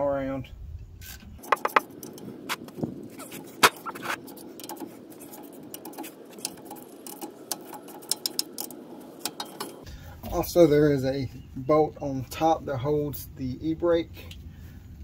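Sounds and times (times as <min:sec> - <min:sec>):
hand ratchet clicking: 0:04.2 - 0:09.8.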